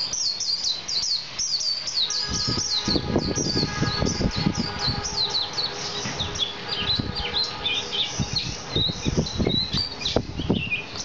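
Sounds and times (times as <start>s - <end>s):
bird singing twittering chirps: 0.0s - 11.0s.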